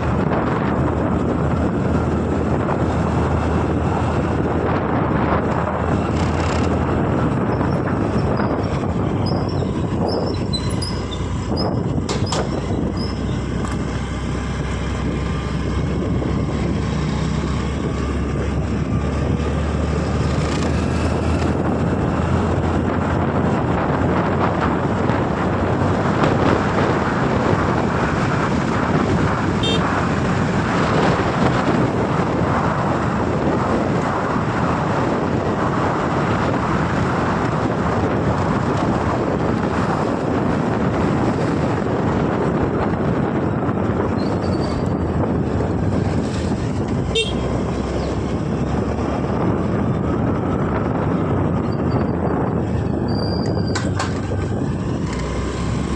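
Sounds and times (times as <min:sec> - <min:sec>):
wind and road noise: 0:00.0 - 0:55.9
scooter engine humming: 0:24.9 - 0:33.6, 0:42.5 - 0:53.1.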